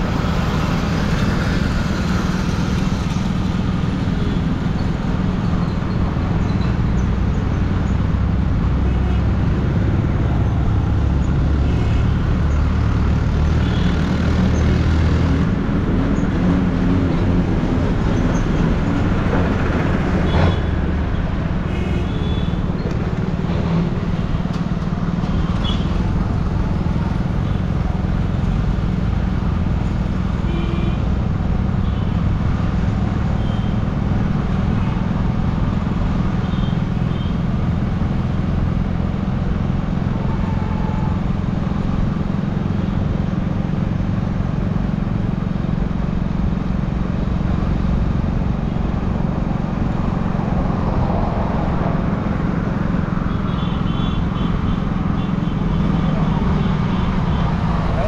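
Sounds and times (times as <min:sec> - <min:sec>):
road traffic: 0:00.0 - 0:58.0
car horn beeps: 0:21.7 - 0:22.6, 0:53.3 - 0:56.1.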